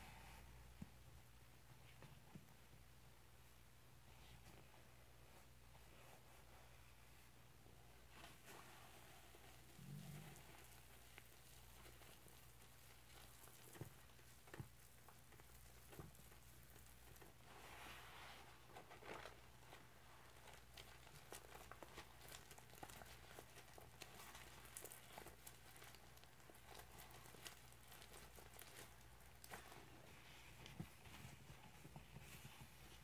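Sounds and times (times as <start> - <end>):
small clicks and crackles: 8.1 - 17.5, 18.7 - 33.0.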